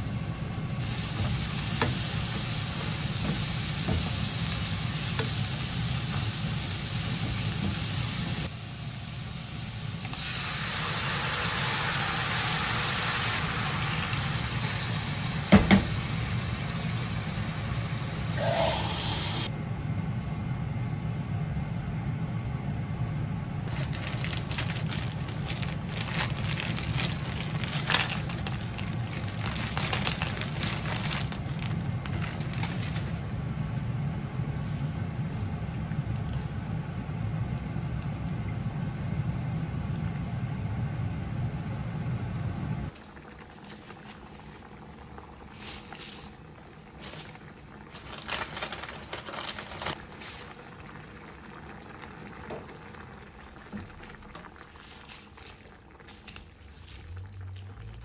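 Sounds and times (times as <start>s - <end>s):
steady low hum: 14.4s - 43.0s
soup bubbling in a pan: 23.7s - 48.0s, 49.9s - 58.0s.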